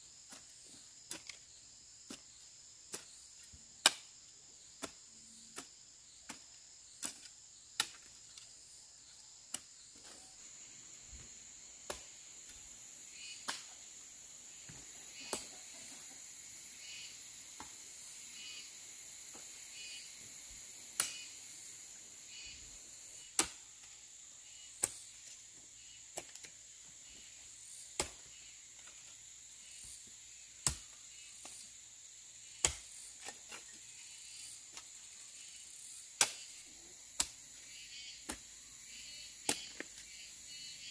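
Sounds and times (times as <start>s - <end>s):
crickets chirping: 0.0s - 40.9s
high insect drone: 0.0s - 40.9s
sharp chopping strikes: 3.8s - 4.1s, 11.8s - 12.4s, 20.9s - 21.3s, 23.2s - 23.6s, 28.0s - 28.2s, 32.6s - 33.0s, 36.2s - 36.6s, 39.4s - 39.8s.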